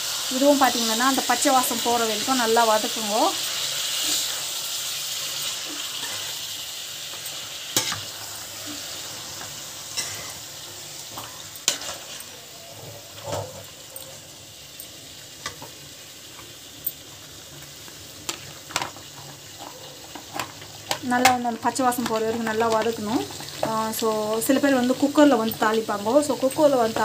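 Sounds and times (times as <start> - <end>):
chicken sizzling in a pan: 0.0 - 27.0
metal spatula scraping a pan: 3.6 - 4.5, 5.4 - 6.4, 7.1 - 14.2.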